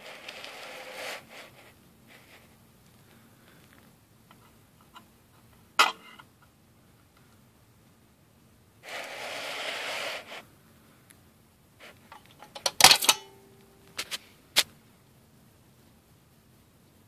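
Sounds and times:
tin toy rasping rustle: 0:00.0 - 0:02.4, 0:08.8 - 0:10.4
coin clattering out: 0:12.5 - 0:13.3.

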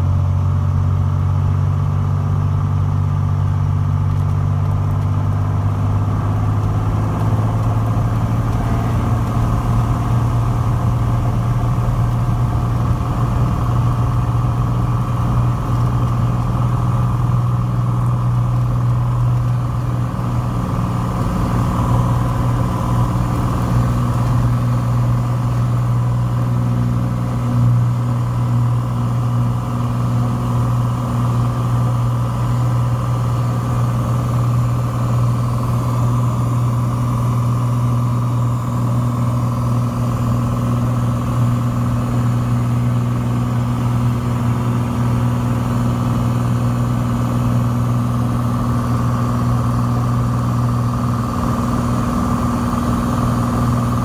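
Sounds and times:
airplane engine droning: 0:03.5 - 0:54.0.

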